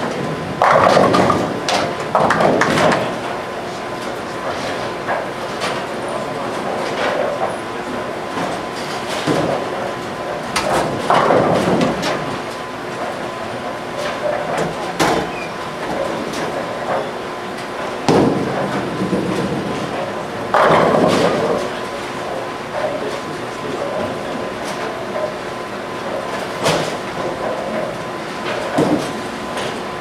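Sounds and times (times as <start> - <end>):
bowling balls rolling: 0.2 - 3.2, 18.0 - 24.5.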